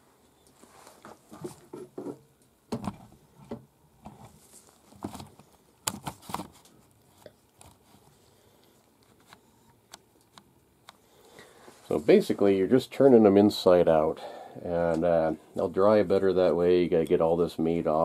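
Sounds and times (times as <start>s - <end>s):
hide crinkling and tapping: 0.9s - 8.0s.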